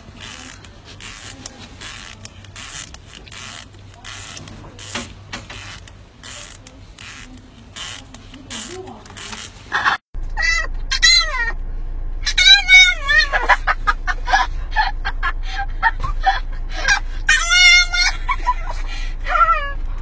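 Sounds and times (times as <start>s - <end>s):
low hum of car cabin: 0.0s - 20.0s.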